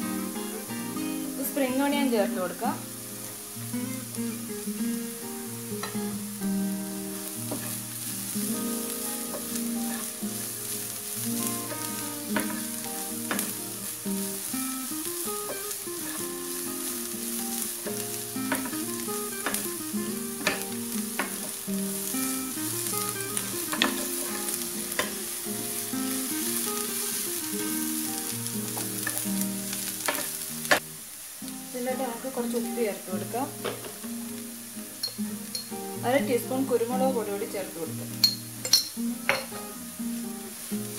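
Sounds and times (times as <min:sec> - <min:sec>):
slow background tune: 0:00.0 - 0:30.8
vegetables sizzling in a frying pan: 0:00.0 - 0:40.9.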